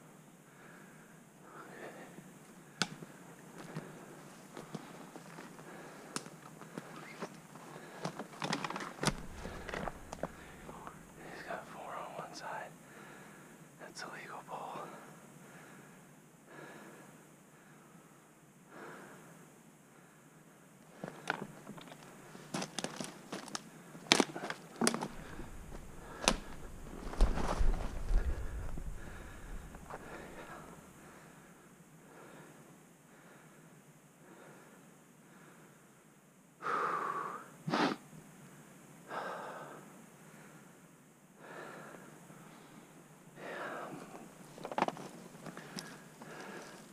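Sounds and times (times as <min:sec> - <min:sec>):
soft breaths: 0:00.0 - 0:22.6, 0:23.6 - 0:46.9
twigs snapping underfoot: 0:08.0 - 0:11.0, 0:21.2 - 0:30.4.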